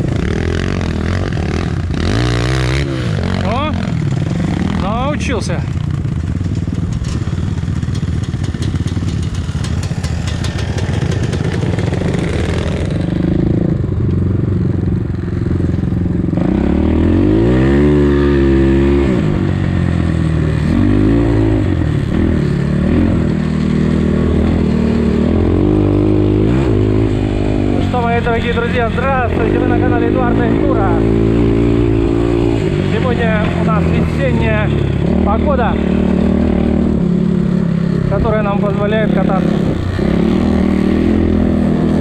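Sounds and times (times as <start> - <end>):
dirt bike engine revving: 0.0 - 42.0
rapid clicking rattle: 6.5 - 12.0.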